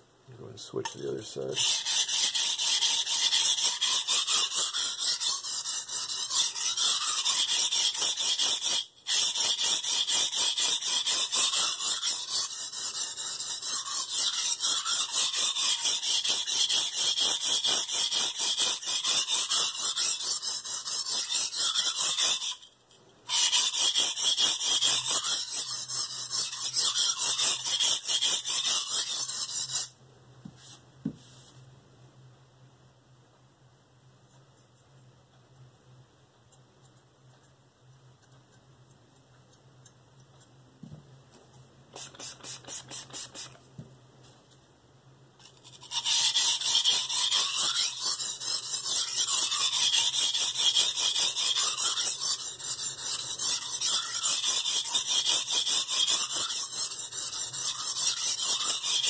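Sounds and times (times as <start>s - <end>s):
knife scraping on whetstone: 0.8s - 22.7s, 23.3s - 29.9s, 45.4s - 59.0s.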